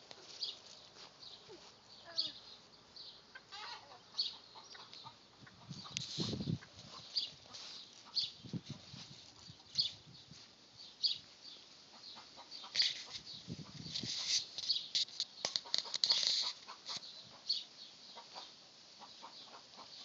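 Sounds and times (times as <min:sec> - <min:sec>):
chickens clucking: 0:03.3 - 0:09.9, 0:11.8 - 0:20.0.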